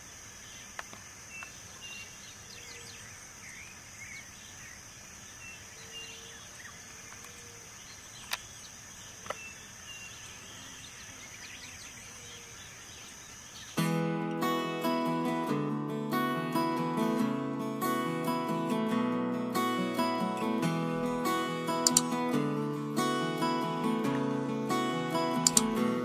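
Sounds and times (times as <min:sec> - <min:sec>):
steady high hiss: 0:00.0 - 0:26.0
bird chirps and calls: 0:01.3 - 0:13.8
sharp clicks: 0:21.8 - 0:22.4, 0:25.3 - 0:25.8.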